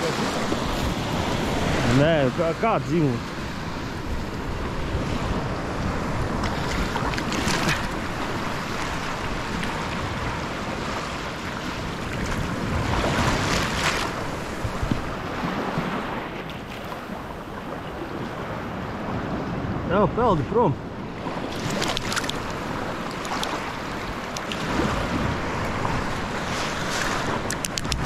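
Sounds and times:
wind buffeting microphone: 0.0 - 20.0, 20.8 - 28.0
small waves washing on sand: 0.0 - 28.0.

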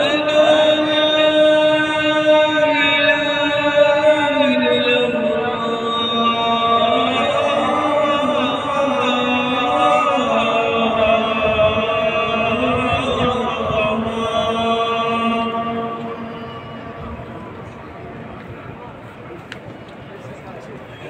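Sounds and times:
person chanting call to prayer: 0.0 - 18.4.

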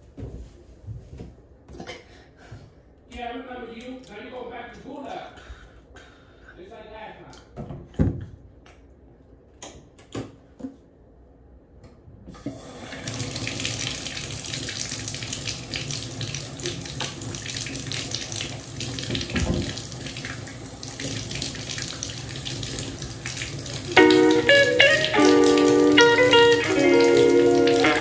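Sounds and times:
water running into sink: 12.4 - 28.0.

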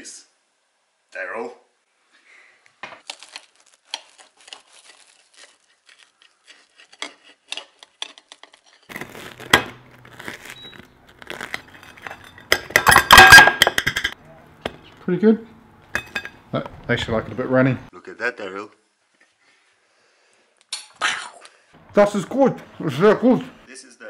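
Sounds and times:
knife scraping ceramic plate: 5.9 - 8.9.

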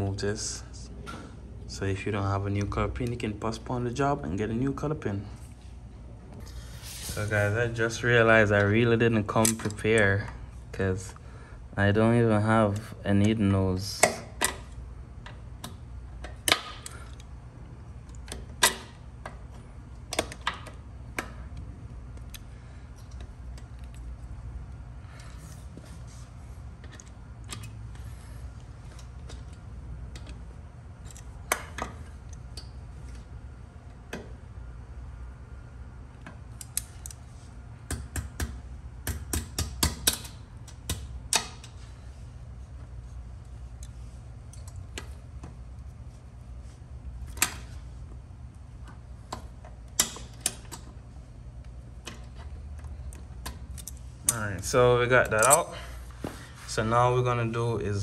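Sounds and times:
steady low hum: 0.0 - 58.0
metal hand tools clicking and scraping: 55.2 - 55.8.

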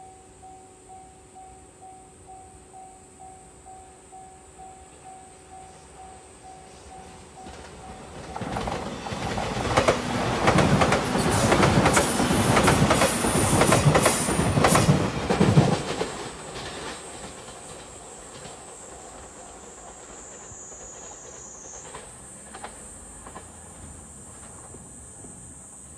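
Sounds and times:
train passing at speed: 3.7 - 25.9
wheels clicking over rail joints: 6.9 - 25.3.

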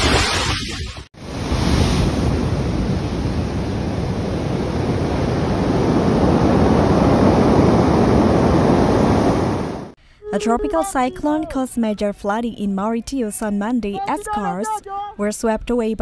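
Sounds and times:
heavy surf breaking on beach: 0.0 - 10.0.

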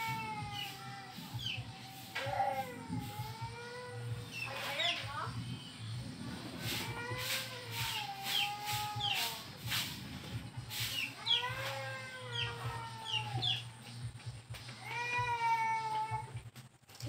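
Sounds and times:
chicken drawn-out calls: 0.0 - 5.1, 6.4 - 9.9, 10.6 - 13.8
chicks peeping: 0.0 - 13.9.

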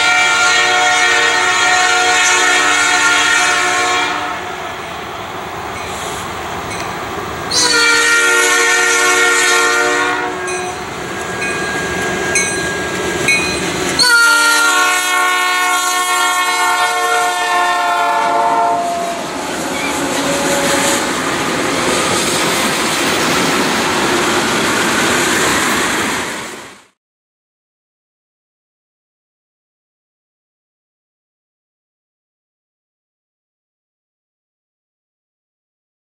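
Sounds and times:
locomotive air horn: 0.0 - 4.6, 7.5 - 10.9, 14.0 - 22.2
train cars rolling on rails: 0.0 - 16.7, 17.4 - 26.9.

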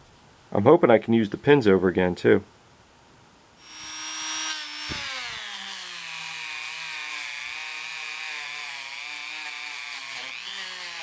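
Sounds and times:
rotary tool motor whine: 3.6 - 11.0.

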